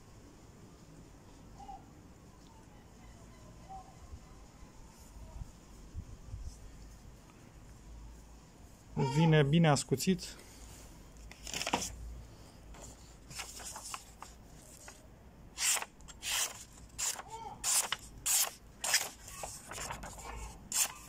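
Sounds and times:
knife slicing paper: 0:15.6 - 0:21.0.

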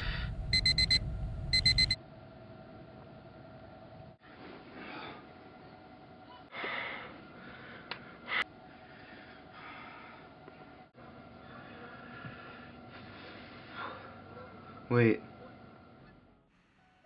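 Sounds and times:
man breathing and sighing: 0:00.0 - 0:00.5.

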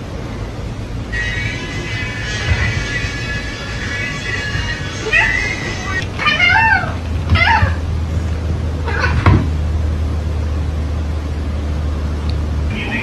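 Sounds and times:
steady low hum: 0:00.0 - 0:13.0
cat meowing: 0:01.2 - 0:07.9, 0:08.8 - 0:09.5.

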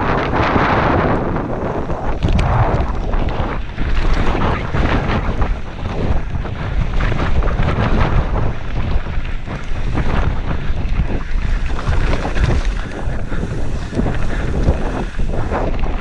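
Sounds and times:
bike tyres rumbling: 0:00.0 - 0:16.0
wind buffeting microphone: 0:00.0 - 0:16.0
bike rattling and knocking: 0:03.3 - 0:16.0.

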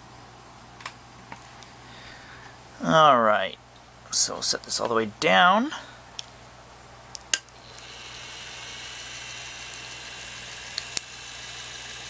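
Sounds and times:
film projector whirring: 0:07.5 - 0:12.0.

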